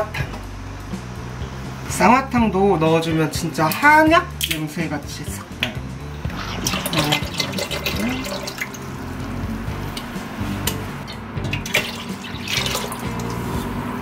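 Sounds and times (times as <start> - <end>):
liquid pouring into steel pot: 6.3 - 9.2, 11.0 - 13.6.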